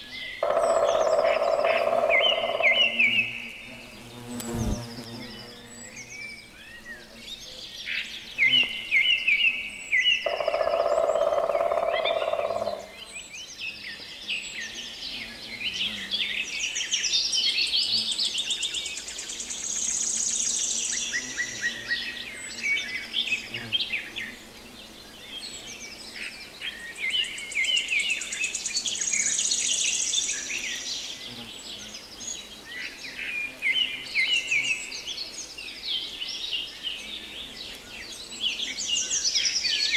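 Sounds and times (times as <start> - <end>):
birds singing and chirping: 0.0 - 39.9.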